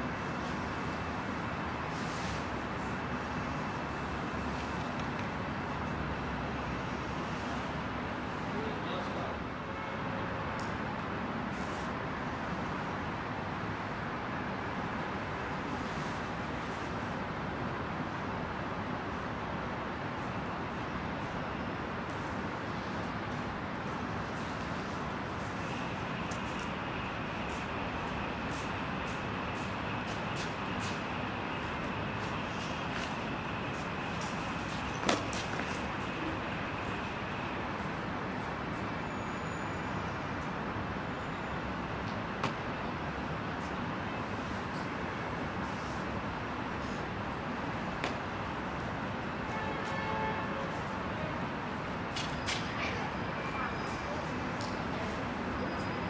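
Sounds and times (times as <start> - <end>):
city traffic hum: 0.0 - 56.0
faint short scuffs: 32.2 - 36.2.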